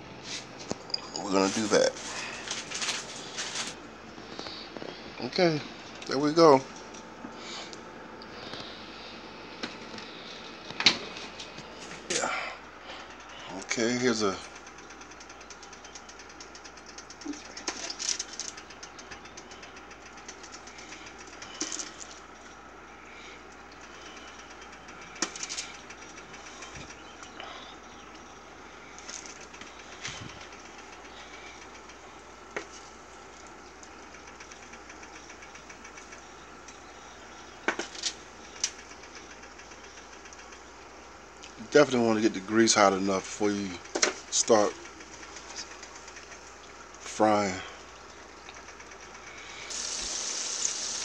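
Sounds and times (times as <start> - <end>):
chicken frying in hot oil: 47.9 - 51.0
chicken deep-frying in oil: 49.6 - 51.0.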